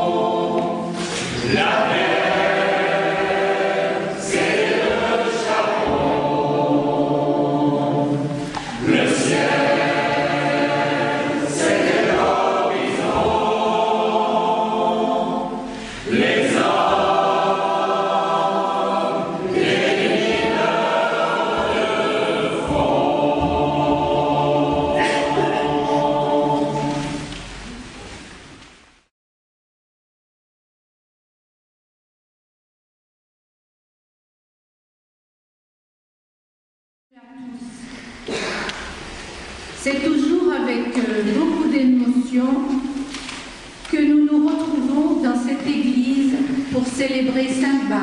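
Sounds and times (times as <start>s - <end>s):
choir and congregation singing a hymn: 0.0s - 28.2s, 38.1s - 43.6s.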